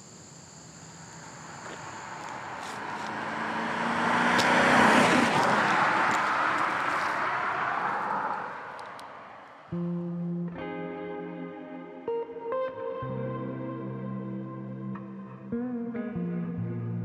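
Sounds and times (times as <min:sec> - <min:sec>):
car driving past: 0:01.0 - 0:09.8.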